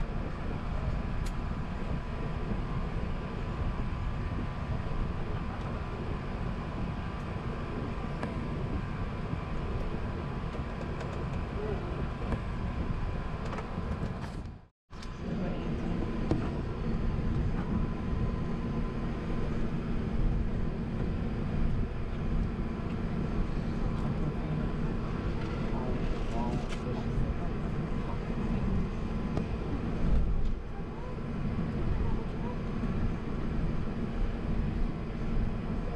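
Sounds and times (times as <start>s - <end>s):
airliner cabin and engine rumble: 0.0s - 35.9s.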